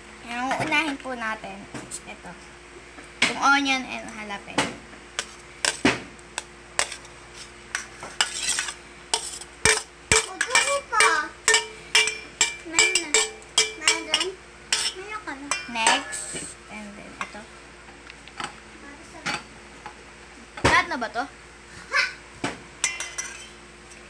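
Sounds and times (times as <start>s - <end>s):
metal spoon scraping and clinking: 7.8s - 16.4s, 22.8s - 23.5s.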